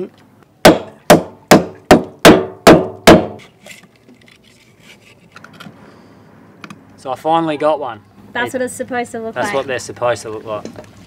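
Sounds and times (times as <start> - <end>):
hammer cracking shell on wood: 0.6 - 3.5.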